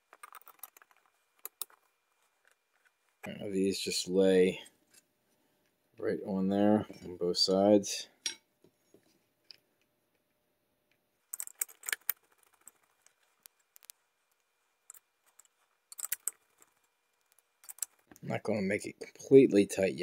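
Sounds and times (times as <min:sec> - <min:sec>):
small metal clicks and clinks: 0:00.1 - 0:01.8, 0:11.3 - 0:14.0, 0:14.9 - 0:18.1.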